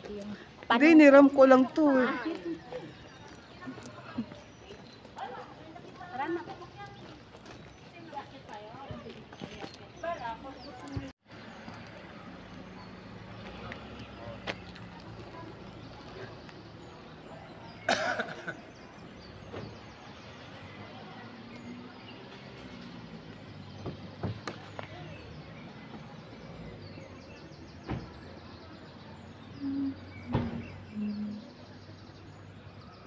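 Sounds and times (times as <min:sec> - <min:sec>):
distant voices: 0:00.0 - 0:33.0.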